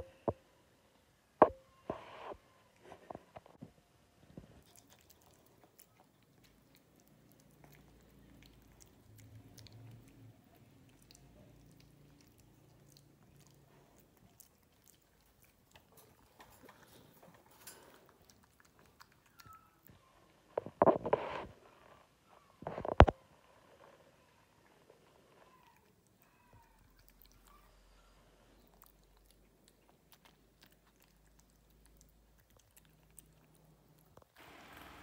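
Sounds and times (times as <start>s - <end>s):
faint low hum: 0.0s - 35.0s
puppy gnawing wire bars: 10.9s - 19.8s.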